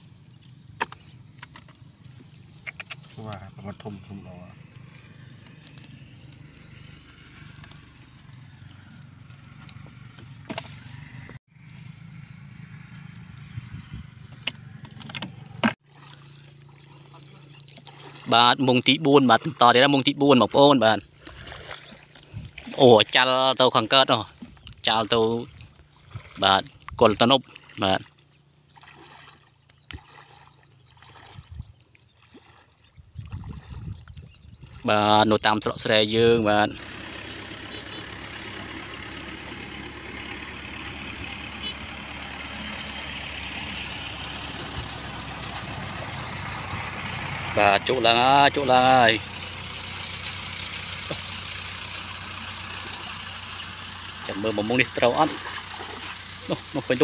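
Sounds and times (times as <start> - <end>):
wading through shallow water: 0.0 - 57.0
low rumble: 3.3 - 15.7.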